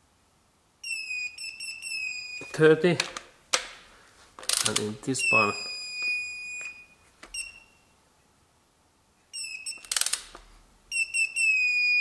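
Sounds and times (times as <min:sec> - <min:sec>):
torque wrench beeping: 0:00.8 - 0:02.5, 0:04.6 - 0:07.8, 0:09.4 - 0:10.2, 0:10.9 - 0:12.0
ratchet clicks: 0:09.8 - 0:10.4.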